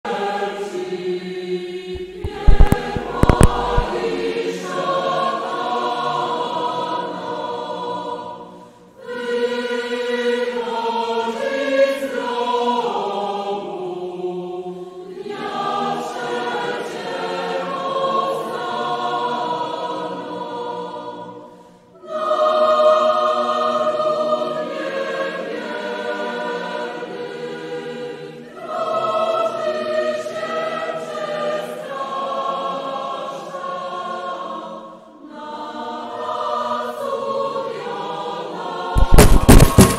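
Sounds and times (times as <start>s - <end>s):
choral singing: 0.0s - 39.9s
loud sharp clicks: 2.0s - 4.2s.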